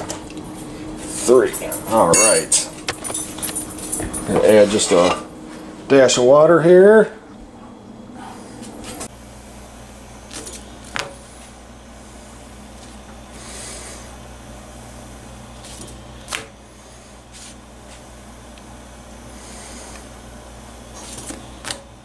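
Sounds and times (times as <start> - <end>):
gas burner hissing: 8.1 - 22.0.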